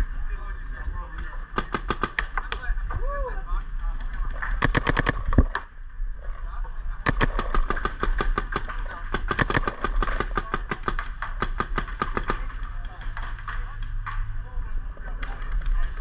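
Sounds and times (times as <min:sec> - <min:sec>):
paintball marker firing: 0:01.5 - 0:02.7, 0:04.4 - 0:05.7, 0:07.1 - 0:14.2.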